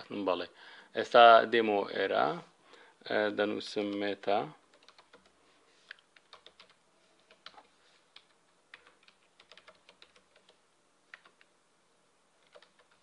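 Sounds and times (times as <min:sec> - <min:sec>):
typing on computer keyboard: 0:04.7 - 0:11.5, 0:12.4 - 0:13.0.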